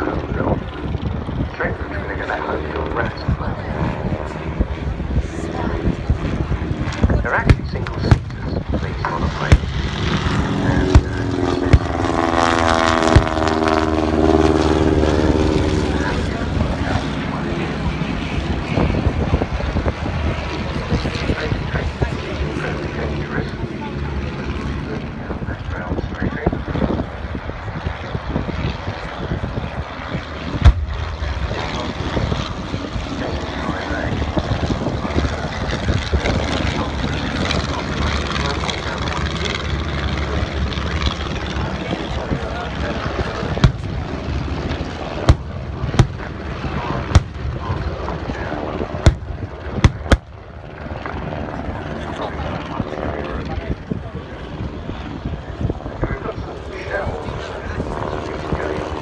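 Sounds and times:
propeller aircraft engines droning: 0.0s - 59.0s
loud pyrotechnic bangs: 7.0s - 13.7s, 30.5s - 31.6s, 43.4s - 47.9s, 48.8s - 50.5s
loud explosion bang: 30.6s - 31.2s.

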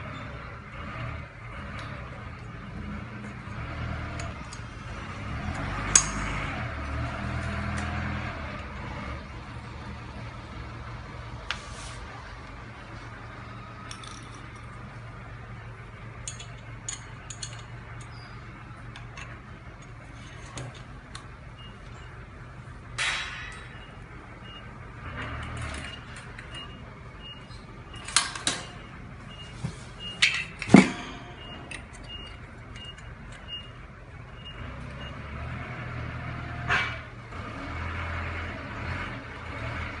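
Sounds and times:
metal parts knocking and clinking: 5.9s - 6.3s, 13.8s - 14.8s, 15.9s - 22.1s, 23.0s - 24.0s, 30.2s - 33.7s.

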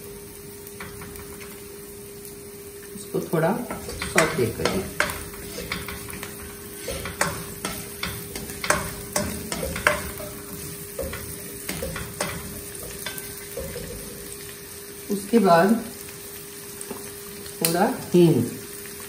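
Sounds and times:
spices sizzling in hot oil: 0.0s - 19.0s
plastic spoon scraping a pan: 3.7s - 14.0s.

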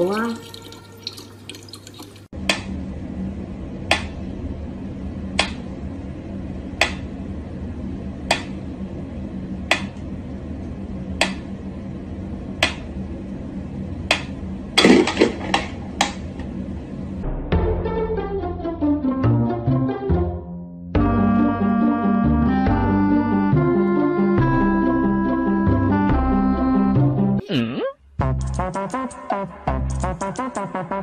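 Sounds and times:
steady low hum: 2.3s - 17.6s.

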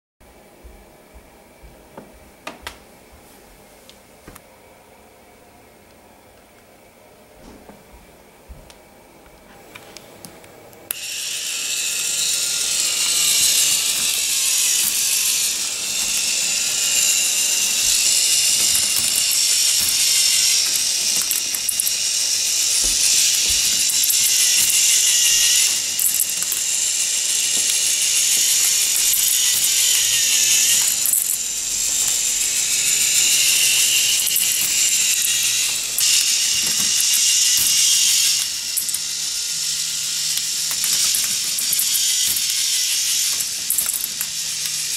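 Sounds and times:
toy motor and gears whirring: 10.8s - 44.9s.

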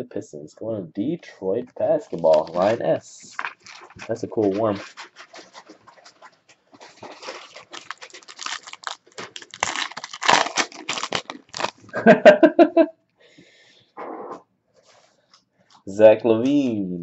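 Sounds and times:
plastic wrappers crinkling: 1.8s - 12.2s.

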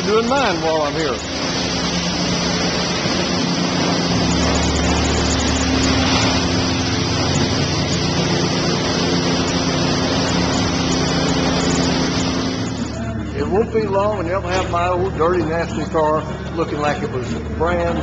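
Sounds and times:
car wash hiss: 0.0s - 13.1s
car wash machinery hum: 0.0s - 18.0s.

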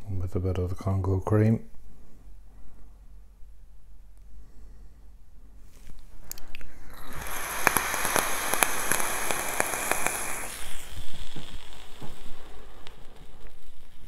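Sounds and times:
e-liquid sizzling and popping on coil: 5.8s - 14.0s.

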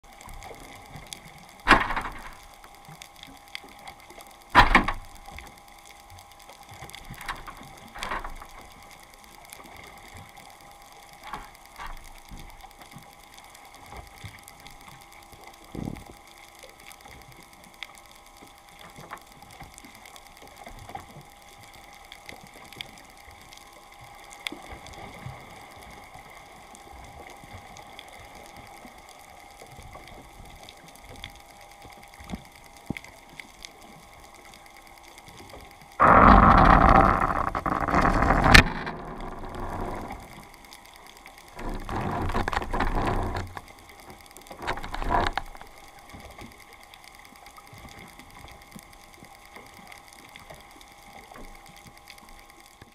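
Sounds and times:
faint steady hum: 0.0s - 52.9s
underwater clicks and crackles: 0.0s - 52.9s
loud rough noise: 1.7s - 2.3s, 36.0s - 40.3s, 41.6s - 43.6s.

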